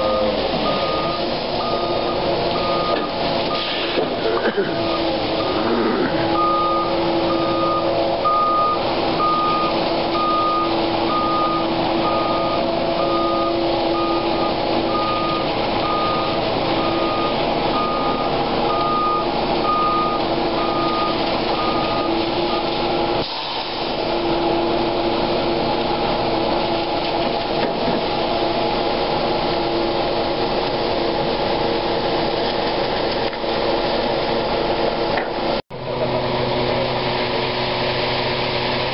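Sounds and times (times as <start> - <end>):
truck backup alarm beeping: 0.0 - 23.2
diesel engine running: 0.0 - 38.9.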